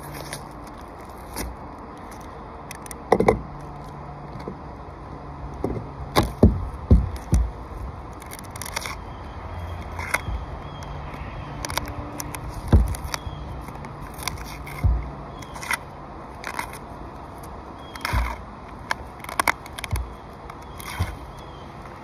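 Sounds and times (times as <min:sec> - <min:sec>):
tape crinkling and scraping: 0:00.0 - 0:05.0, 0:06.0 - 0:22.0
dull knocks: 0:05.6 - 0:07.6.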